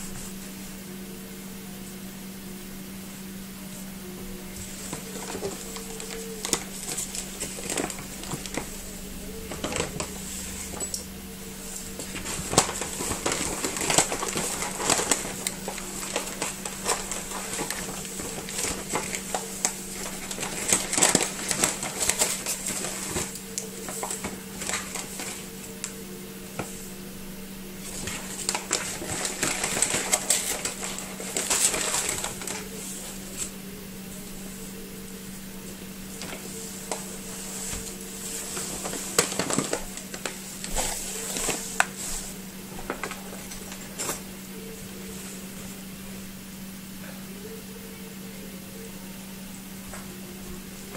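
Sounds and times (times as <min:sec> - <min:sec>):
paper bags rustling: 0:04.2 - 0:27.0, 0:27.6 - 0:45.9.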